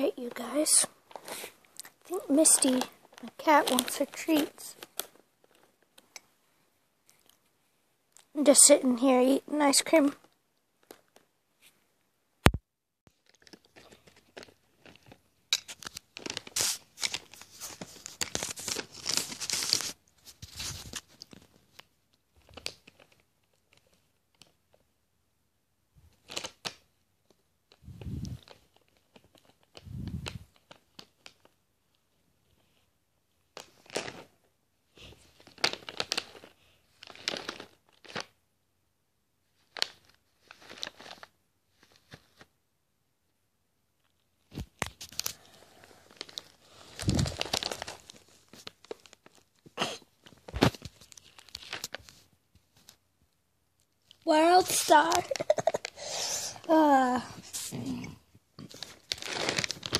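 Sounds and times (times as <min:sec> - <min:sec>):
plastic bag crinkling: 0:00.0 - 0:05.9, 0:13.1 - 0:24.5, 0:33.6 - 0:34.3, 0:35.0 - 0:38.4, 0:39.7 - 0:42.4, 0:44.1 - 0:49.6, 0:50.2 - 0:53.0, 0:54.0 - 0:57.8, 0:58.6 - 0:59.9.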